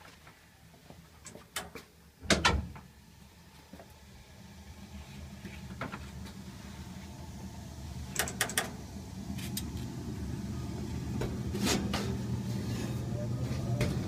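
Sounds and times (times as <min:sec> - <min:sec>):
gas furnace humming: 0:00.0 - 0:14.0
sharp clicks and knocks: 0:08.1 - 0:08.7.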